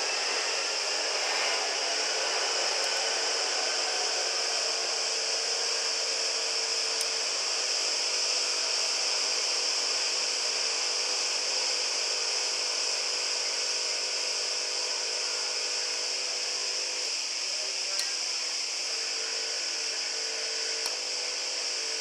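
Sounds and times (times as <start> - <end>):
faint hum: 0.0 - 22.0
vacuum pump hiss: 0.0 - 22.0.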